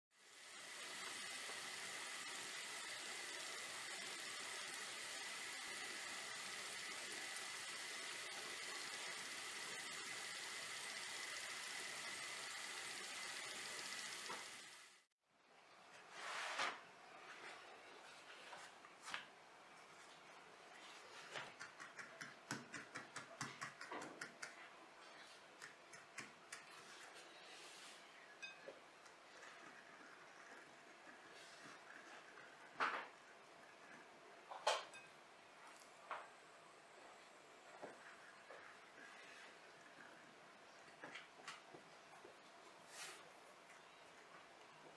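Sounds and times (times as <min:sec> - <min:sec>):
pastry sizzling in oil: 0:00.1 - 0:15.2
pastry brush tapping: 0:21.4 - 0:24.7.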